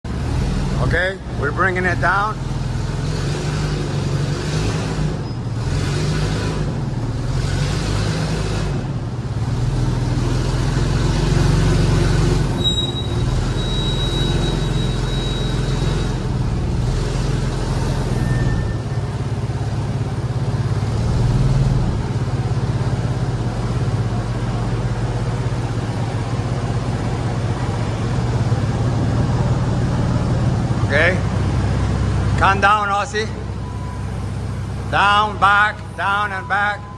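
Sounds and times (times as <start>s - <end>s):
forklift engine running: 0.0s - 36.9s
thin high squeal: 12.6s - 16.2s, 18.1s - 19.1s.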